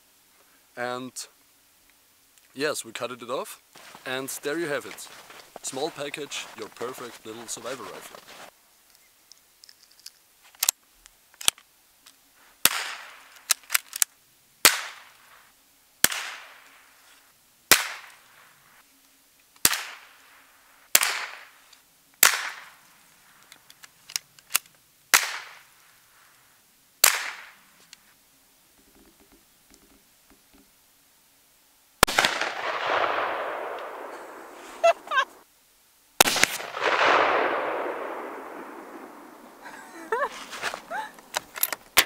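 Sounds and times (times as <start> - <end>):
rifle shots with echo: 12.6 - 13.3, 14.6 - 15.1, 16.0 - 16.8, 17.7 - 18.2, 19.6 - 20.2, 21.0 - 21.6, 22.2 - 22.8, 25.1 - 25.6, 27.0 - 27.6, 32.0 - 35.2, 36.2 - 39.6.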